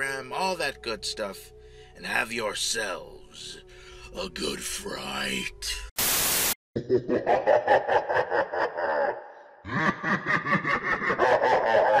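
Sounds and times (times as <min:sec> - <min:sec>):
man laughing: 0:06.8 - 0:12.0.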